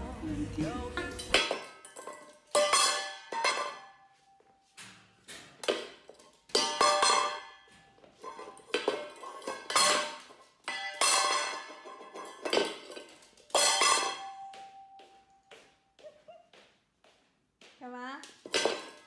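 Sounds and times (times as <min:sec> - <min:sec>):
metal dog bowl clanging on floor: 0:01.0 - 0:15.6, 0:18.4 - 0:19.0.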